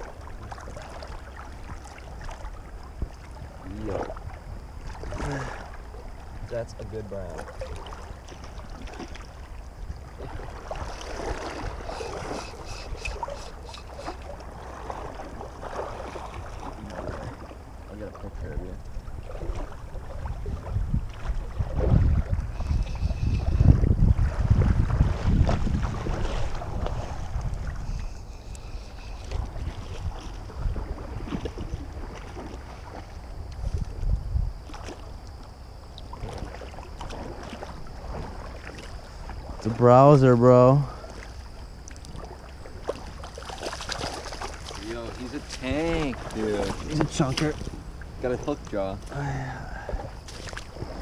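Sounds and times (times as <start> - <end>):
river water flowing: 0.0 - 24.5, 34.6 - 51.0
small water splashes: 0.0 - 51.0
wind on microphone: 7.6 - 39.9.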